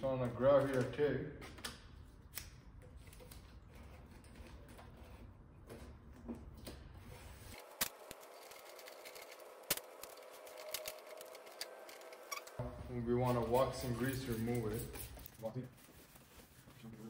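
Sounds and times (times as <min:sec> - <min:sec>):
tape crackling: 0:07.5 - 0:12.6.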